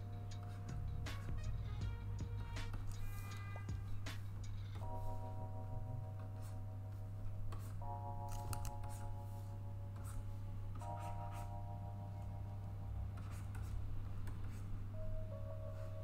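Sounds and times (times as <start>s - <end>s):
soft background music chords: 0.0s - 16.0s
steady low hum: 0.0s - 16.0s
stylus scratching on drawing tablet: 7.5s - 11.7s, 13.2s - 14.8s.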